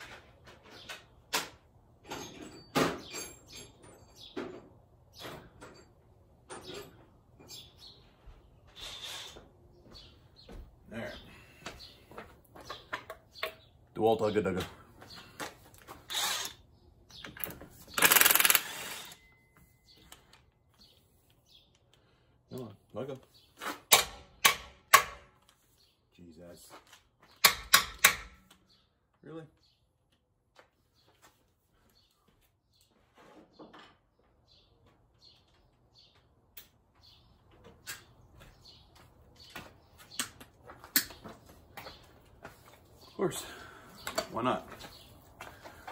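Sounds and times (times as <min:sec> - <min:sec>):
impact wrench hammering: 0:18.0 - 0:19.1, 0:23.9 - 0:25.3, 0:27.4 - 0:28.4.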